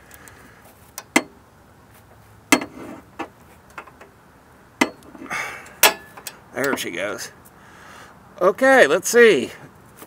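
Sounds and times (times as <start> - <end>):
breaker bar metallic clicks: 5.7 - 6.9.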